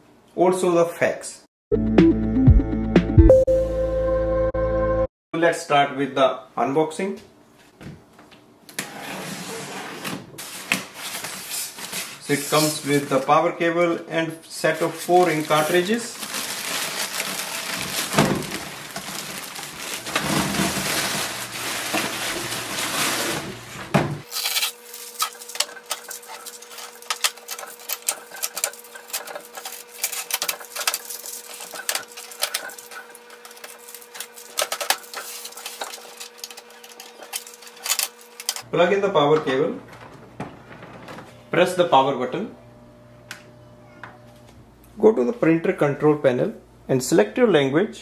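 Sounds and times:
plastic wrapping crinkling: 0:10.4 - 0:13.3, 0:14.7 - 0:38.6
packing tape being stripped: 0:15.2 - 0:23.4, 0:24.2 - 0:38.6.

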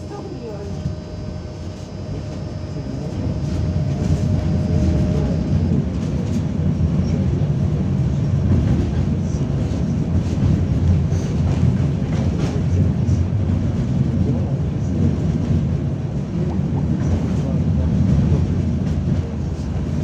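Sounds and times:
tram wheels rumbling: 0:00.0 - 0:20.0.

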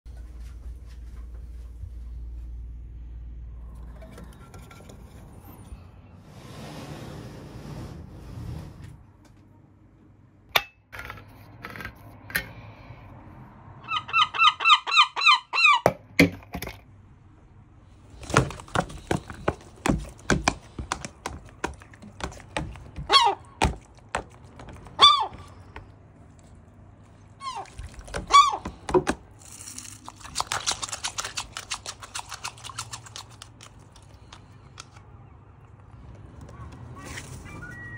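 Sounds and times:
gull squeaky calls: 0:13.8 - 0:15.8, 0:23.0 - 0:23.6, 0:24.9 - 0:25.6, 0:27.4 - 0:28.8
bill tapping on plastic: 0:18.2 - 0:25.9.

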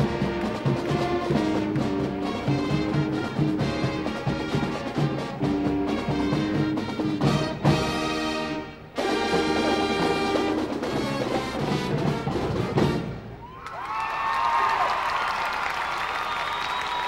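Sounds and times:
marching band playing: 0:00.0 - 0:13.5.

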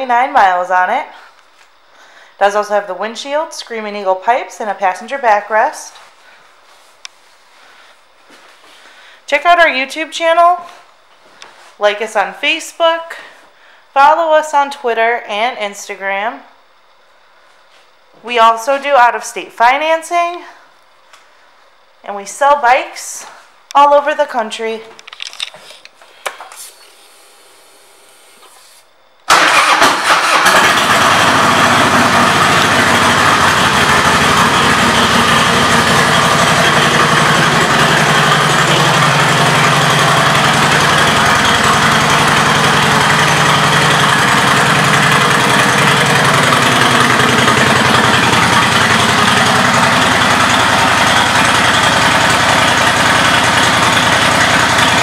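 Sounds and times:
motorcycle engine idling: 0:29.4 - 0:55.0.

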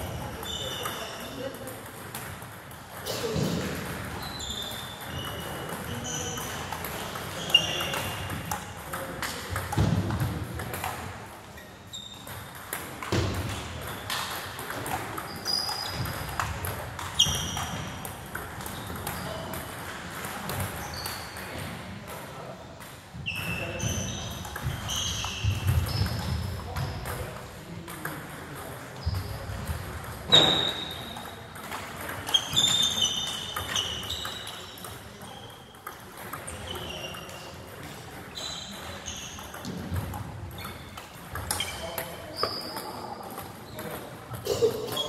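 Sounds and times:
background chatter: 0:00.0 - 0:45.0
table tennis balls pinging: 0:00.0 - 0:45.0.

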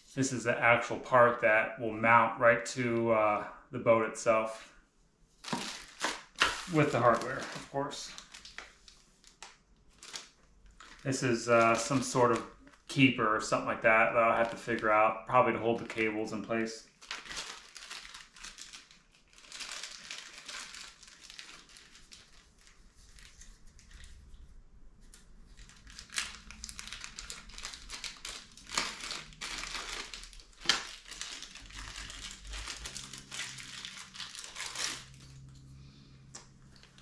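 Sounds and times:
plastic bag crinkling: 0:05.4 - 0:13.6, 0:14.2 - 0:24.3, 0:25.2 - 0:36.0, 0:36.6 - 0:37.0.

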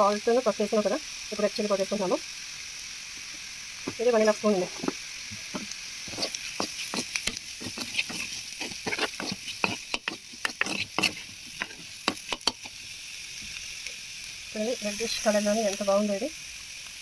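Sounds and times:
oil sizzling: 0:00.0 - 0:17.0
spatula clinking and scraping pan: 0:04.8 - 0:12.8.

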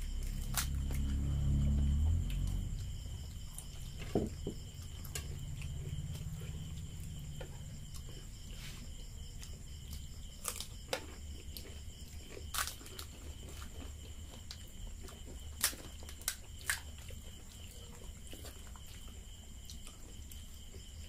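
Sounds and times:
low hum: 0:00.0 - 0:10.0
chewing: 0:04.8 - 0:21.0.

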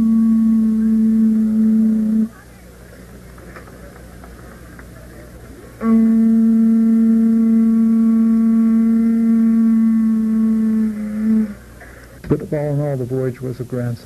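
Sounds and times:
conch shell trumpet note: 0:00.0 - 0:02.4, 0:05.8 - 0:11.7.

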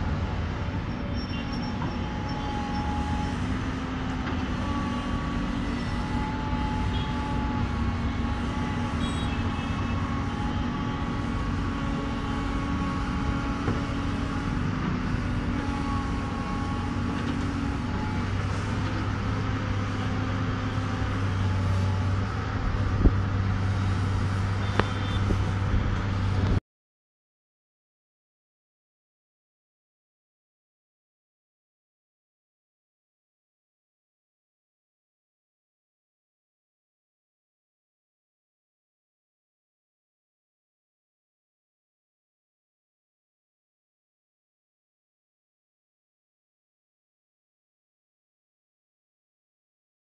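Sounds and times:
diesel engine running: 0:00.0 - 0:26.6.

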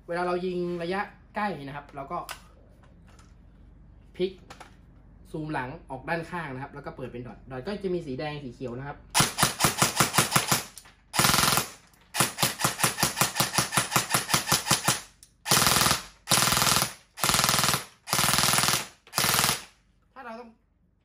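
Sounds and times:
airsoft gun firing: 0:09.2 - 0:19.8.

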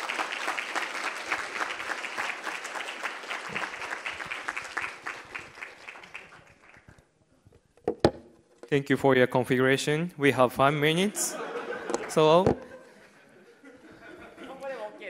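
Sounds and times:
audience applauding: 0:00.0 - 0:07.0, 0:11.6 - 0:12.4.

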